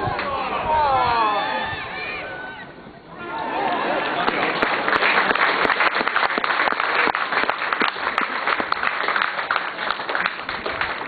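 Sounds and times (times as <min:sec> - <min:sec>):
spectators applauding: 0:03.8 - 0:11.0.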